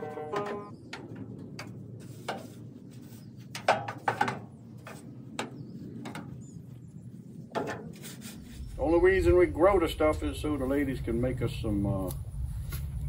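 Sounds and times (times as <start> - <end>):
broom scraping sweeps: 2.0 - 3.4, 7.9 - 8.9.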